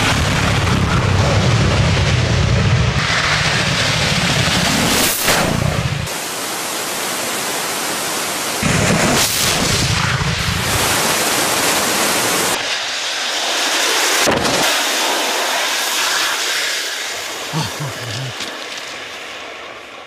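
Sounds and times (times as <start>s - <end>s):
rocket motor rushing roar: 0.0s - 6.1s
water spray: 10.6s - 19.0s.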